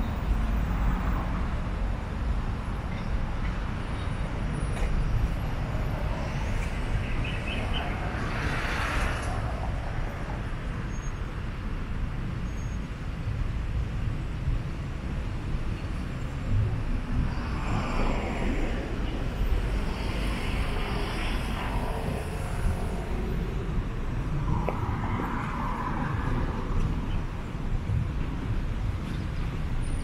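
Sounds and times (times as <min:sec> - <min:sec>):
road traffic rumble: 0:00.0 - 0:30.0.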